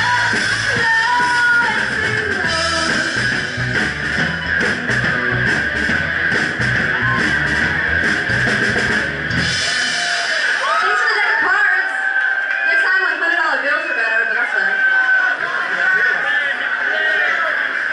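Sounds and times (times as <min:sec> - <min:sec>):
bass guitar: 0:00.0 - 0:10.8
electric guitar: 0:00.0 - 0:10.8
drum kit: 0:00.0 - 0:11.3.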